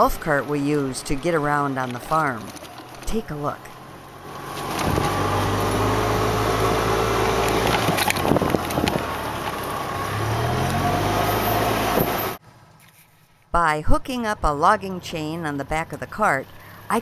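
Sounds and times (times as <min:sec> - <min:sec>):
golf cart engine running: 0:00.0 - 0:12.8.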